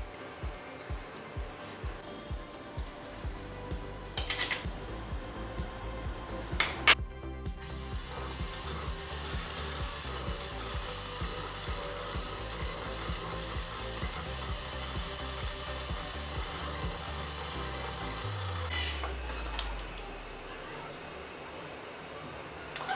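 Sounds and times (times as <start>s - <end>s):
background music with steady beat: 0.0s - 20.8s
electric hand mixer running: 0.0s - 22.9s.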